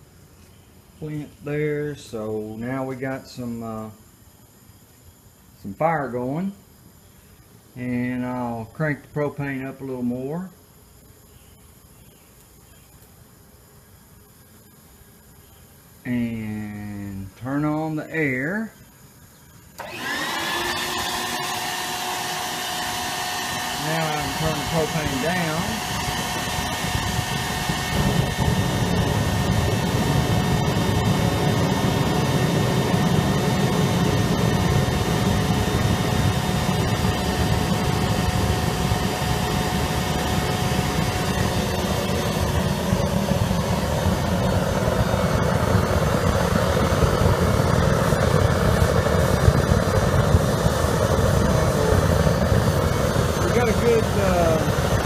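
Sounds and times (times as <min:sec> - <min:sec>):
furnace burner roaring: 0:19.8 - 0:55.0.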